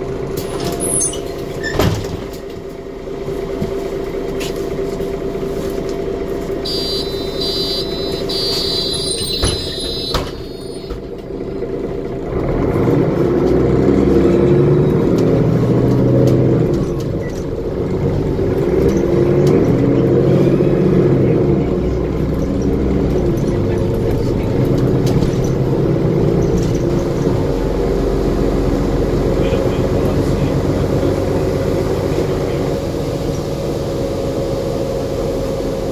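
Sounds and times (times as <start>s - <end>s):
bus diesel engine accelerating: 0.0s - 35.9s
electronic beeps: 6.7s - 11.0s
knocks inside bus: 9.2s - 11.1s.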